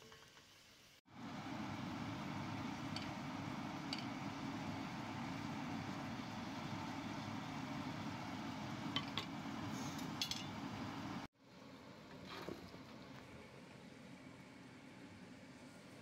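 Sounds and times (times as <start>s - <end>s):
pot boiling and bubbling: 0.0s - 13.8s.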